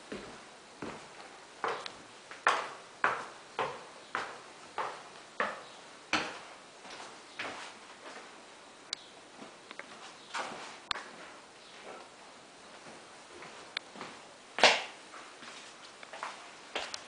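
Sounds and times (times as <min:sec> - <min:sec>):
footsteps on hard floor: 0:00.0 - 0:08.3, 0:09.4 - 0:12.1, 0:12.8 - 0:14.2, 0:15.4 - 0:17.0.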